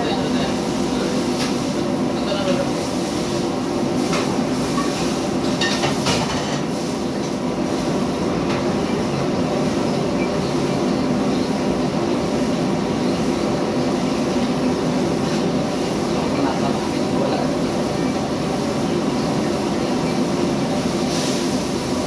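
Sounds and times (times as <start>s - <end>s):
gas burners roaring: 0.0s - 22.0s.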